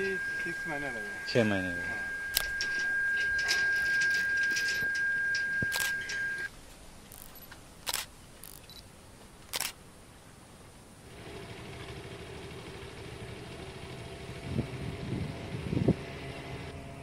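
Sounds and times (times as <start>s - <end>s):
camera shutter clicks: 5.7s - 5.9s, 7.2s - 8.8s, 9.5s - 9.8s
low engine hum: 11.0s - 17.0s.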